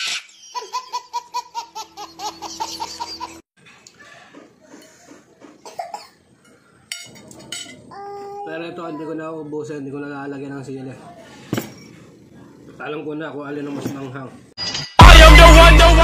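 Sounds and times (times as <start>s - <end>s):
baby giggling: 0.0s - 3.4s.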